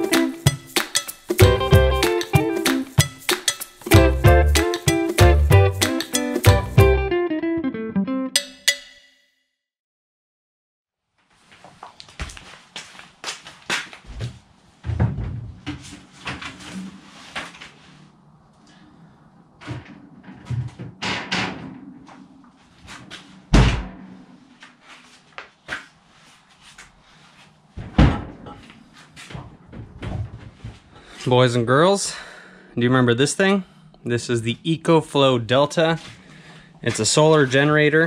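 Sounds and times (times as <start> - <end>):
heavy slams: 23.5 - 24.2
knocks and clatter of objects: 29.3 - 30.9.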